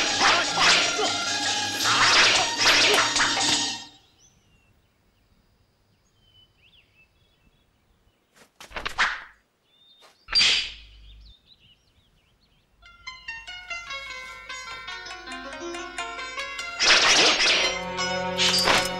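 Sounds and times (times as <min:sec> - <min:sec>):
faint birds chirping: 0:00.0 - 0:16.8
sword swishes: 0:01.8 - 0:03.8, 0:18.4 - 0:18.9.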